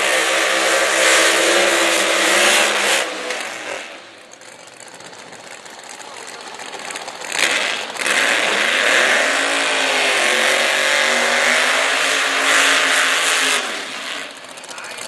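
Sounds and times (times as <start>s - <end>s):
drag car engine revving: 0.0s - 15.0s
tyres spinning: 4.2s - 8.9s.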